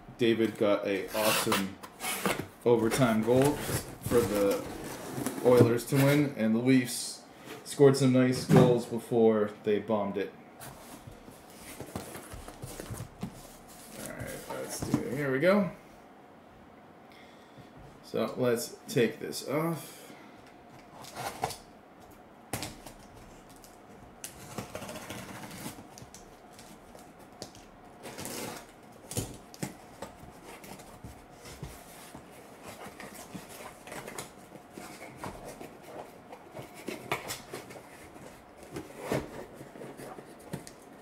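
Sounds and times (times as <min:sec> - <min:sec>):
cardboard rustling and scraping: 0:00.9 - 0:06.3, 0:10.6 - 0:15.4, 0:24.3 - 0:27.2, 0:28.0 - 0:41.0.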